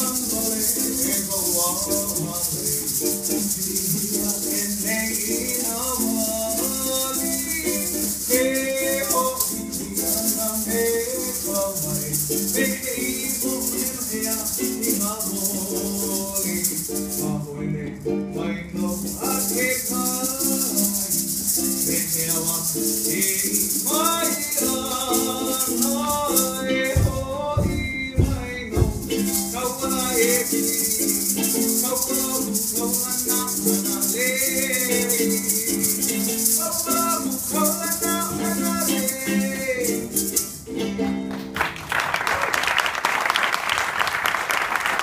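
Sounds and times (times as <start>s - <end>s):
person singing: 0.0s - 41.2s
plucked strings: 0.0s - 41.7s
shaker rhythm: 0.0s - 45.0s
low thumps: 26.1s - 29.5s
audience applause: 41.3s - 45.0s.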